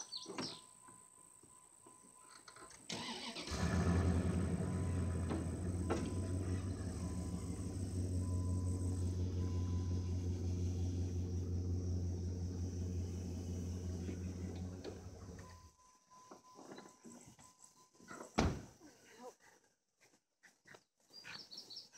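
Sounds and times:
truck engine starting and running: 2.9 - 15.7.

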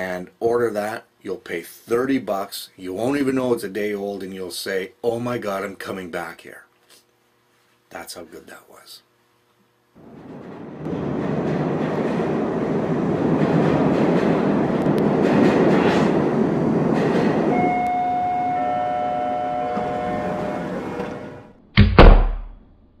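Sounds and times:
horn holding a chord: 17.5 - 21.5
loud thumps: 21.7 - 22.7.

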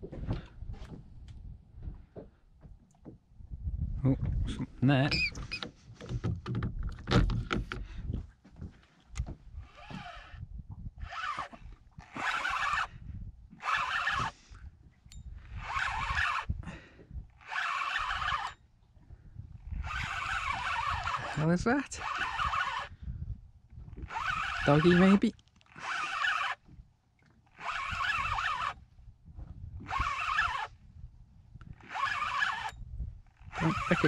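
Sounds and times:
knocks and handling noise: 5.3 - 10.0
spinning reel winding: 11.0 - 12.9, 13.6 - 14.4, 15.6 - 16.5, 17.4 - 18.6, 19.8 - 22.9, 24.0 - 26.6, 27.5 - 28.8, 29.9 - 30.7, 31.8 - 32.8, 33.4 - 34.0.

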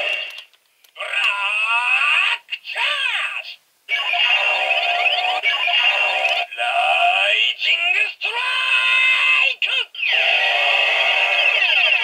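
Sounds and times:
toy gun electronic sound effects: 4.0 - 6.5, 10.0 - 12.0.

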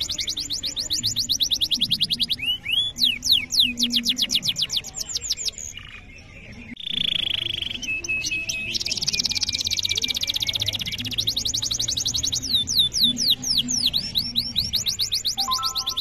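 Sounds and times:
canary singing: 0.0 - 16.0.

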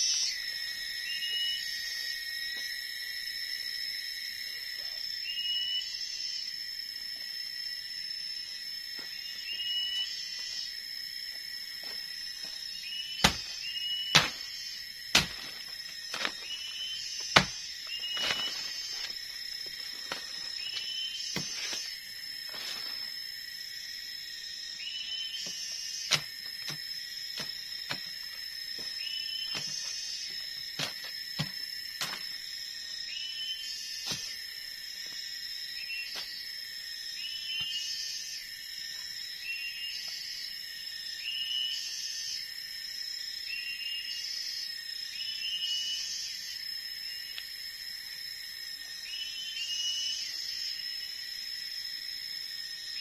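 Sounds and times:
insects droning: 0.0 - 53.0
machete striking wood: 13.2 - 14.5, 15.1 - 16.4, 17.3 - 18.6, 26.1 - 26.8, 30.8 - 32.2.

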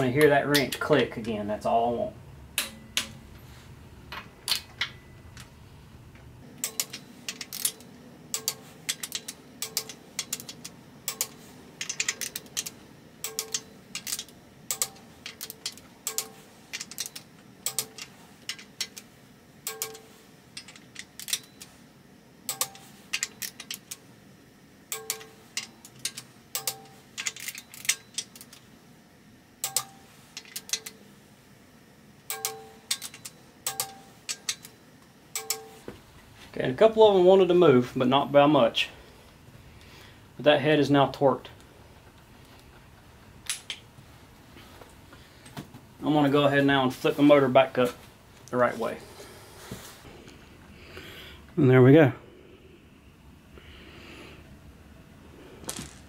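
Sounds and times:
torque wrench clicking: 6.6 - 21.7, 22.5 - 24.0, 24.9 - 28.6, 32.3 - 34.8.

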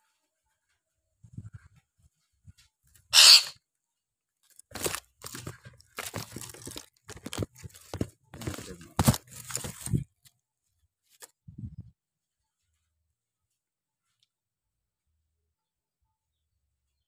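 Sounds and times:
short hissing burst: 3.2 - 3.5
plastic tub crackling and rustling: 4.5 - 10.2.

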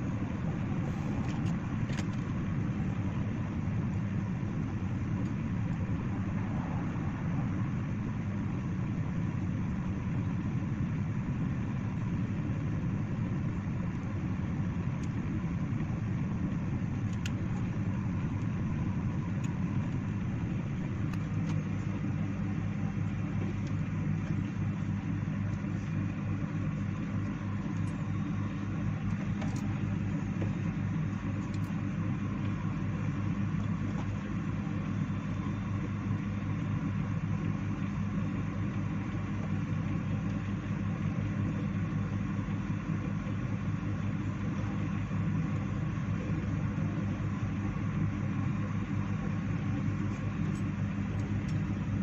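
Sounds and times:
hot air gun blower humming: 0.0 - 52.0.

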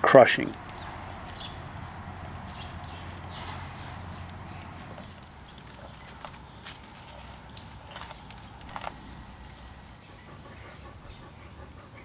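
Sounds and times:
animal chewing meat: 0.7 - 11.8
bone crunching: 5.2 - 9.2.

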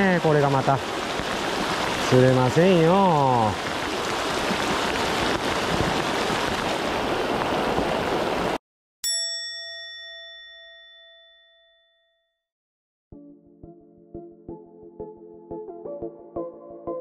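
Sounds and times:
heavy rain on river: 0.0 - 8.6
river current rushing: 0.0 - 8.6
bell-like chime: 9.0 - 12.4.

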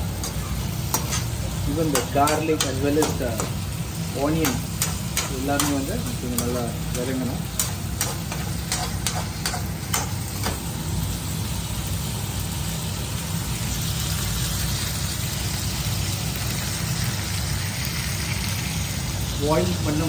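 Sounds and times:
vegetables sizzling in oil: 0.0 - 20.0
spatula scraping pan: 0.2 - 3.6, 7.6 - 10.6.

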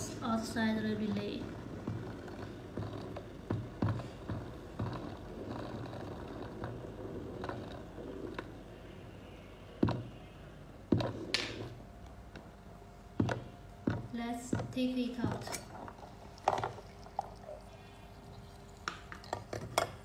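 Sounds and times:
water boiling in a kettle: 0.0 - 8.8, 14.1 - 20.0.

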